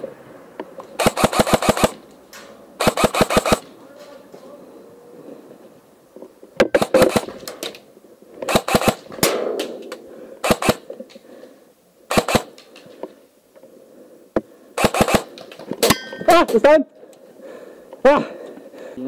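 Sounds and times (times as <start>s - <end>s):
airsoft rifles firing: 0.8s - 3.8s, 6.6s - 7.8s, 8.4s - 11.0s, 12.1s - 12.9s, 14.8s - 16.4s.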